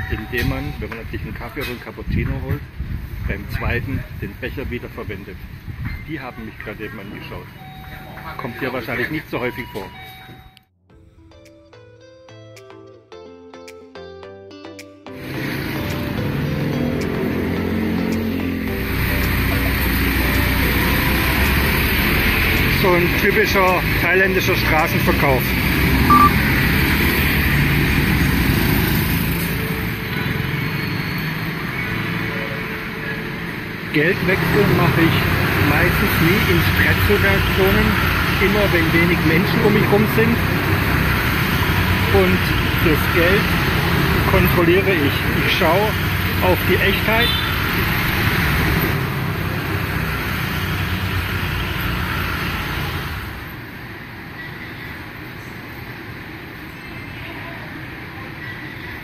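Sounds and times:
street traffic: 0:00.0 - 0:11.5, 0:15.2 - 0:59.0
motorbikes passing: 0:15.2 - 0:54.2.

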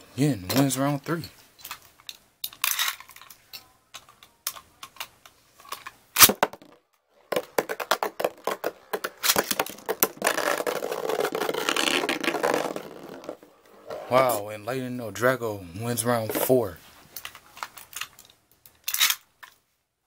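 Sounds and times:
spinning tops rattling on plastic: 0:05.8 - 0:13.4.

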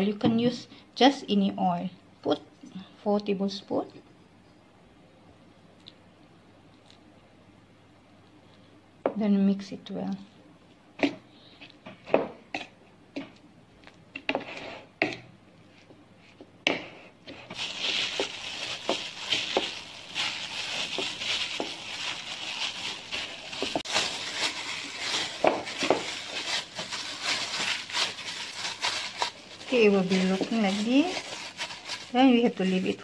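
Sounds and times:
hands kneading dough in a bowl: 0:12.4 - 0:33.0.

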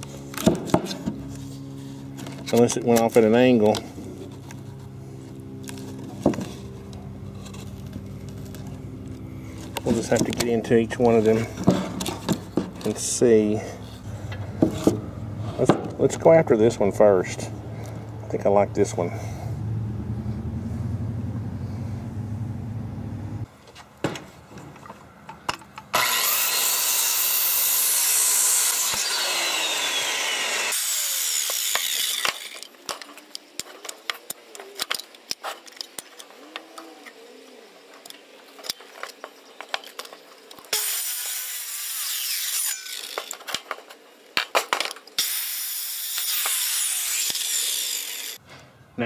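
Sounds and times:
circular saw cutting wood: 0:25.9 - 0:33.2, 0:40.7 - 0:43.5, 0:45.2 - 0:48.4.

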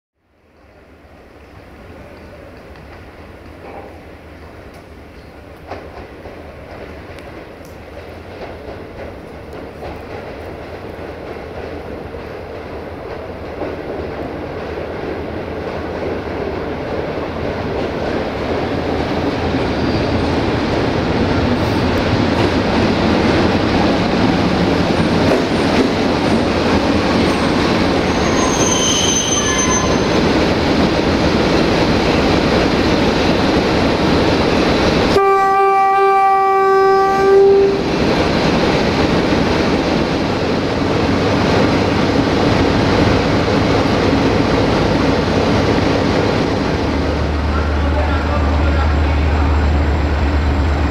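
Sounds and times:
running gear squeal: 0:19.7 - 0:20.3, 0:27.3 - 0:30.2
diesel locomotive engine rumble: 0:29.4 - 0:50.9
locomotive horn blast: 0:35.1 - 0:37.8.

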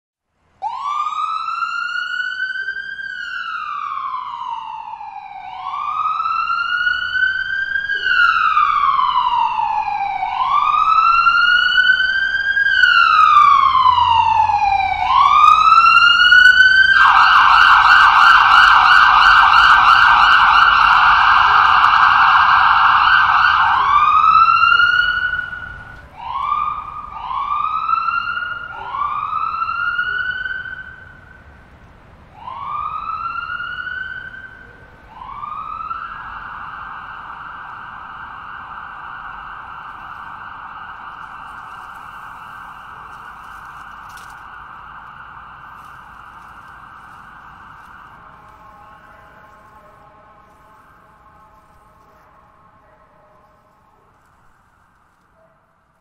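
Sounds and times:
ambulance siren wailing and yelping: 0:00.6 - 0:31.6, 0:32.2 - 0:55.2.

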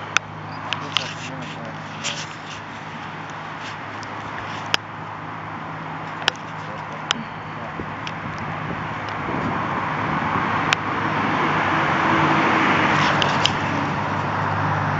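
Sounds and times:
vehicle engine rushing hum: 0:00.0 - 0:14.9
faint clicks: 0:06.0 - 0:07.3.

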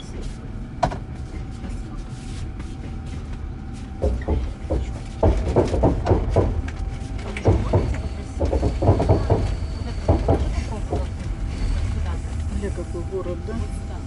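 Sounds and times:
train carriage rumble: 0:00.0 - 0:14.0
people talking indistinctly: 0:07.3 - 0:14.0.

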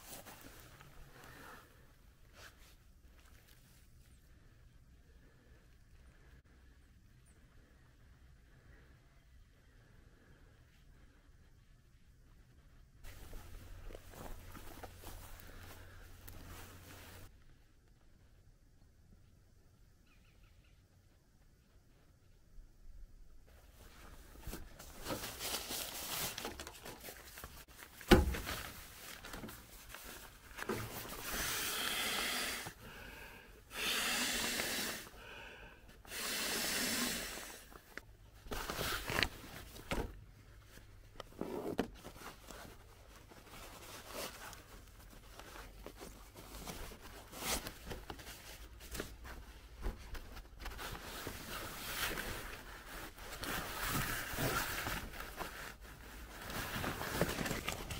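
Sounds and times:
nylon pad rustling: 0:23.6 - 0:33.3, 0:37.7 - 0:57.9
breaths blown into valve: 0:31.2 - 0:33.0, 0:33.7 - 0:37.7.

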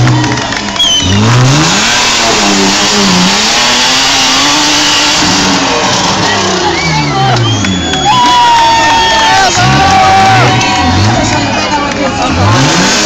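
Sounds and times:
buggy engine revving: 0:00.0 - 0:13.0.

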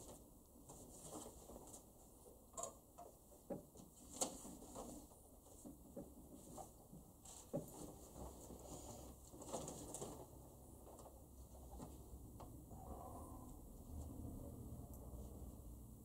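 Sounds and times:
faint rustles: 0:03.8 - 0:14.4.

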